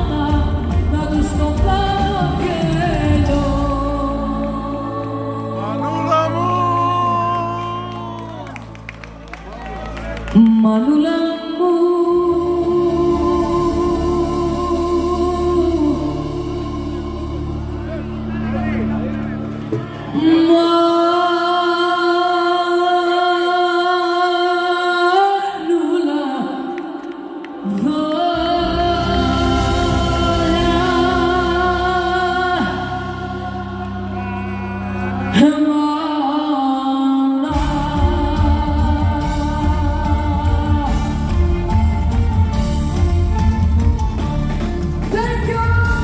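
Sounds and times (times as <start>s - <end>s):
bass and drums: 0.0s - 4.6s, 37.5s - 46.0s
live band playing: 0.0s - 10.8s, 11.8s - 21.2s, 28.2s - 35.8s, 37.5s - 46.0s
woman singing sustained notes: 10.4s - 18.2s, 20.1s - 42.6s.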